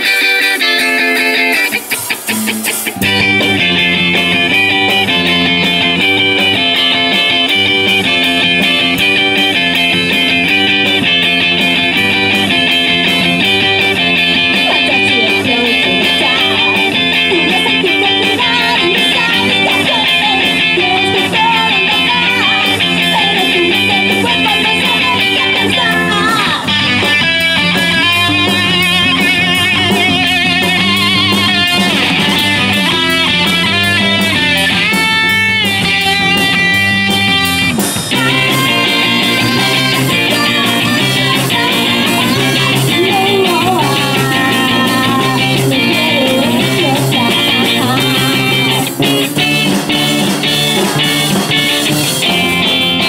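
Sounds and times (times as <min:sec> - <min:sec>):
bass guitar: 0:00.0 - 0:53.0
drum kit: 0:00.0 - 0:53.0
electric guitar: 0:00.0 - 0:53.0.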